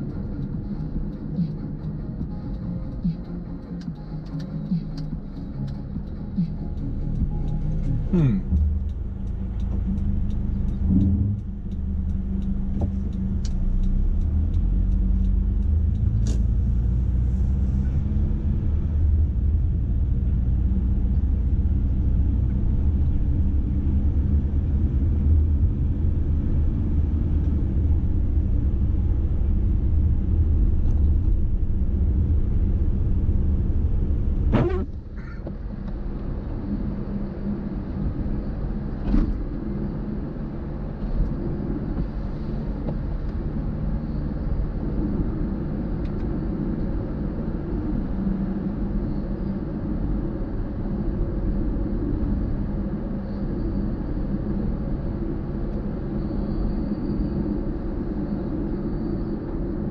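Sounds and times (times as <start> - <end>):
car tyres and engine rumble: 0.0 - 59.9
small click: 15.9 - 16.6.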